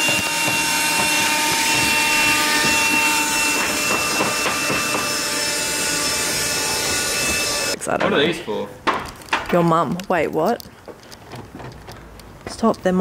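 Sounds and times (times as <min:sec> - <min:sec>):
vacuum cleaner running: 0:00.0 - 0:07.8.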